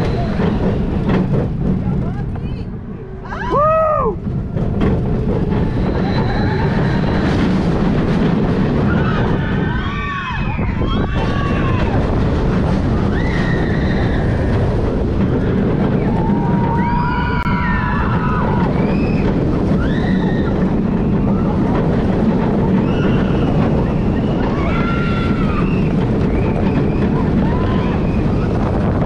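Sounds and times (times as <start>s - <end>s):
roller coaster wind rush and rumble: 0.0s - 29.0s
riders screaming: 5.8s - 7.4s, 22.8s - 28.6s.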